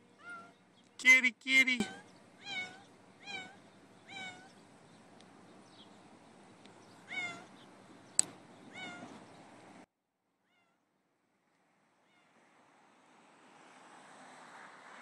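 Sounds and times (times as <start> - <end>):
cat meowing: 0.2 - 0.6, 1.8 - 4.5, 7.1 - 7.5, 8.7 - 9.1.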